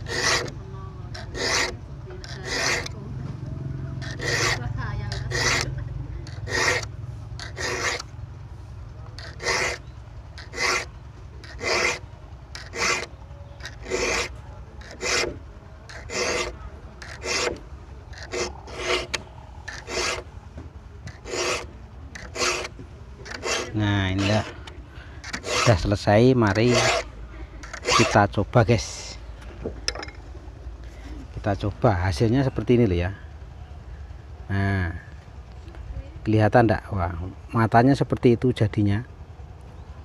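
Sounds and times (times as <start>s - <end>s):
file rasping on saw teeth: 0.0s - 3.0s, 4.0s - 8.1s, 9.2s - 20.3s, 21.1s - 28.3s.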